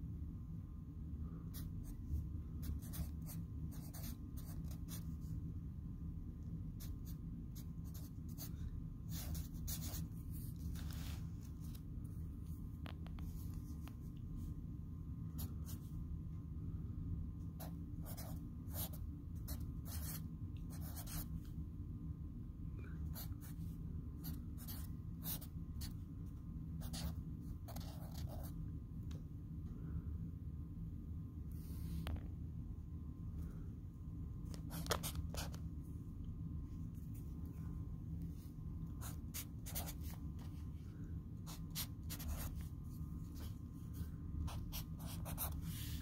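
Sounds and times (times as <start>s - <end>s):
steady low hum: 0.0s - 46.0s
marker scratching on paper: 2.6s - 5.2s, 9.1s - 10.8s, 17.6s - 21.3s, 24.2s - 26.0s, 26.8s - 28.5s, 39.0s - 40.2s, 41.5s - 43.6s, 44.5s - 46.0s.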